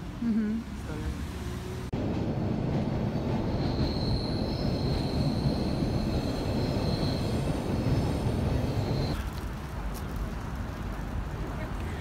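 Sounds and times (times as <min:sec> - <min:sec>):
subway train rumble: 0:00.1 - 0:09.3.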